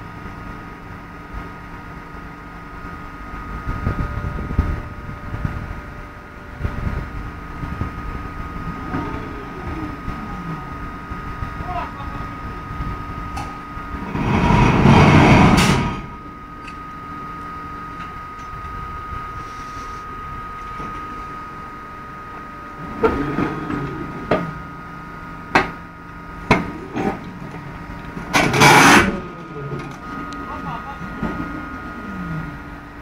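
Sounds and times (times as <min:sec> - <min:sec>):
motor hum with high whine: 0:00.0 - 0:33.0
bursts of rushing noise: 0:14.0 - 0:16.2.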